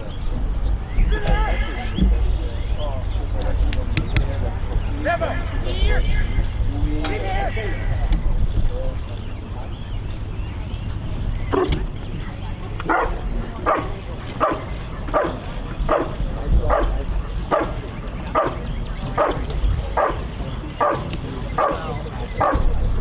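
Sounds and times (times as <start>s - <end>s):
dog barking rhythmically: 12.9s - 18.6s, 19.2s - 19.4s, 20.0s - 22.7s.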